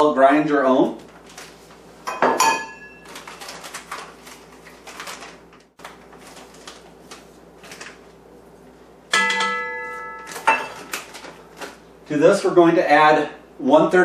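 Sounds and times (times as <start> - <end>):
metal bowl ringing when knocked: 9.1 - 10.8.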